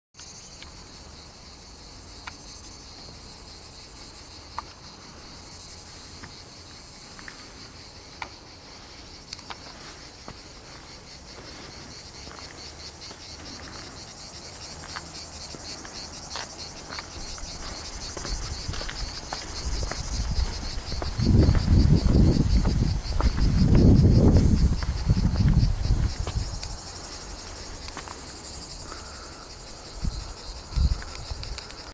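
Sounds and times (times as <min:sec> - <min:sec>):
insects chirping chorus: 0:00.2 - 0:31.9
faint clicks: 0:31.0 - 0:31.9.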